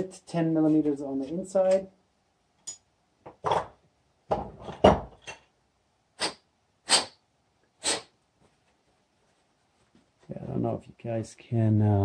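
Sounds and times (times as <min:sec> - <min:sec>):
short puffs of breath: 0:06.2 - 0:07.2, 0:07.8 - 0:08.2.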